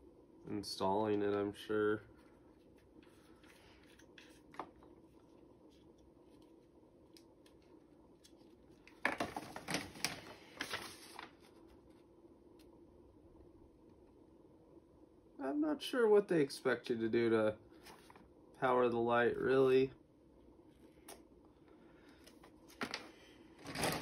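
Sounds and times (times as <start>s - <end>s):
paper rustling and crackling: 7.4s - 12.1s, 22.2s - 24.0s.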